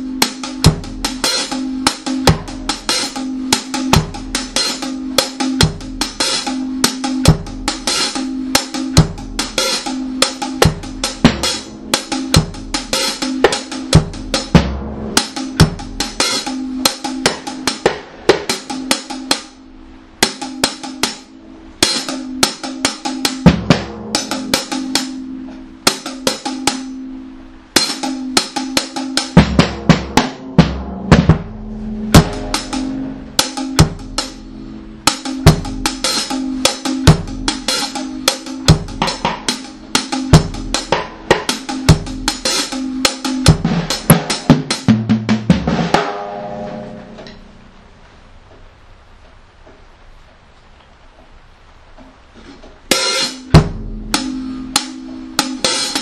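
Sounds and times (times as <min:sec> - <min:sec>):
drum kit snare and rimshots: 0:00.0 - 0:49.9, 0:51.7 - 0:56.0
bass drum hits: 0:29.4 - 0:36.0, 0:53.5 - 0:54.4
low bass tone: 0:29.8 - 0:42.4, 0:46.2 - 0:49.3.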